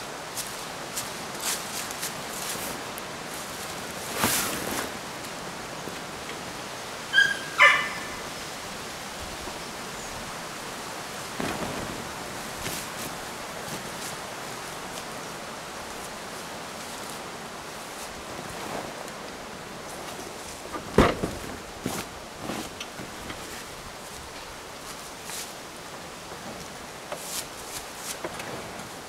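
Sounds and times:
steady background hiss: 0:00.0 - 0:29.0
dog barking: 0:07.2 - 0:08.2.

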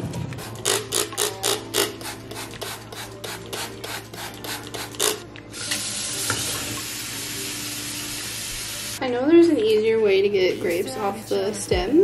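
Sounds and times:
spray bottle spraying: 0:00.4 - 0:05.9.

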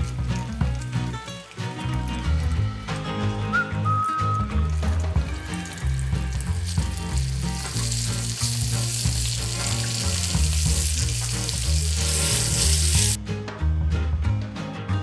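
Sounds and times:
food deep-frying in oil: 0:00.0 - 0:13.2.

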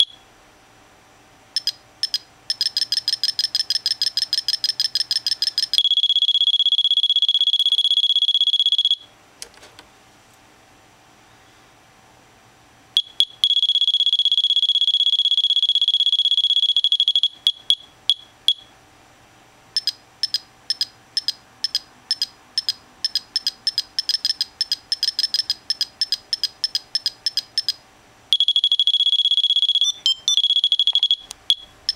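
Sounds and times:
high-pitched electronic beeping tone: 0:01.6 - 0:09.0, 0:19.8 - 0:27.8, 0:28.4 - 0:31.9.

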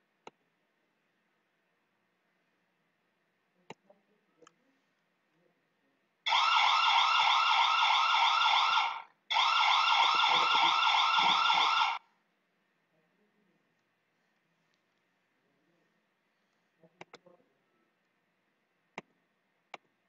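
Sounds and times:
electronic alarm siren warble: 0:06.3 - 0:12.0.

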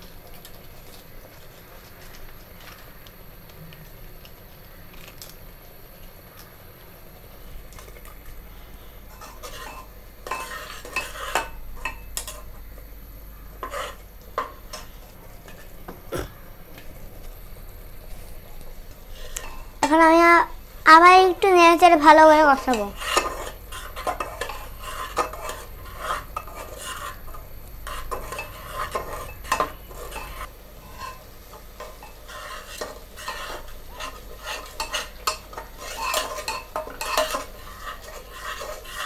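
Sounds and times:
masala paste sizzling: 0:00.0 - 0:39.0
metal spoon scraping a pot: 0:08.8 - 0:12.6, 0:13.6 - 0:15.7, 0:22.6 - 0:39.0.

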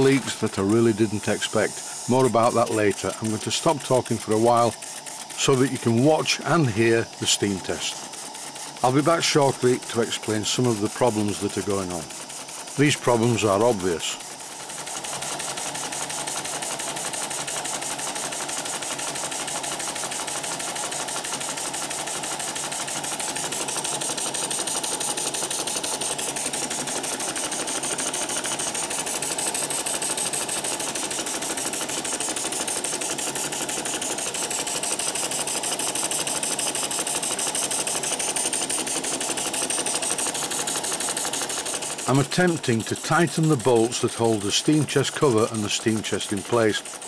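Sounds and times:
steam engine chuffing: 0:00.0 - 0:47.0
steam hissing: 0:00.0 - 0:47.0.

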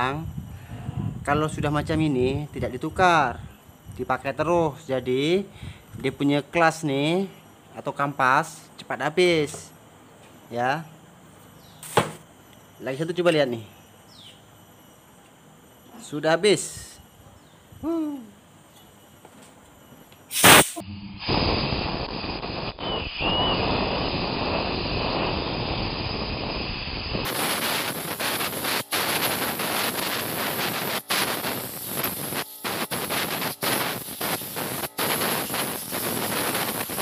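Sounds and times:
sharp pop: 0:11.8 - 0:12.2, 0:20.3 - 0:21.7
compressed air blow gun hissing: 0:20.3 - 0:37.0.

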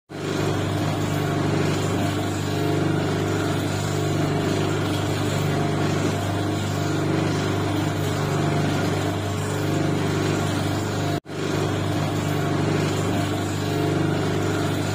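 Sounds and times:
electric motor humming: 0:00.1 - 0:14.9.

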